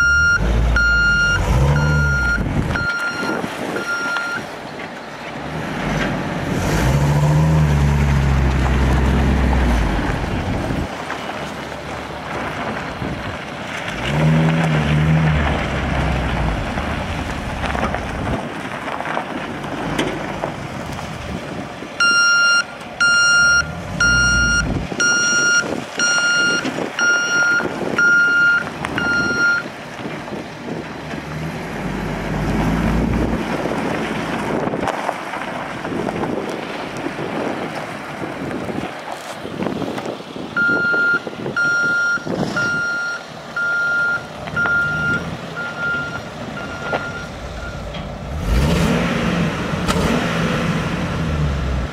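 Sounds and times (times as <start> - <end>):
truck backup alarm beeping: 0.0 - 4.5, 22.0 - 29.7, 40.6 - 48.0
truck engine revving: 0.0 - 4.5, 5.3 - 22.3, 23.0 - 38.9, 42.3 - 51.9.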